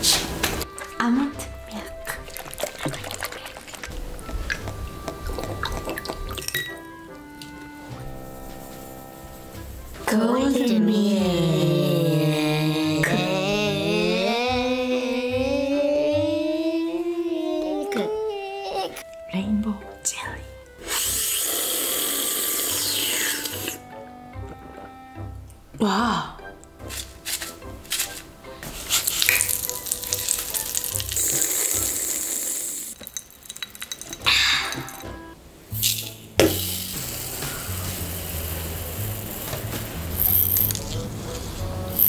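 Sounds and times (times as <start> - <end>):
background music with low beat: 0.0 - 16.7, 23.6 - 29.5, 34.3 - 42.0
popping candy crackling: 1.7 - 7.7, 26.8 - 35.1, 35.8 - 42.0
hissing slurp through straws: 2.1 - 4.7, 20.8 - 23.8, 28.6 - 33.0, 35.8 - 42.0.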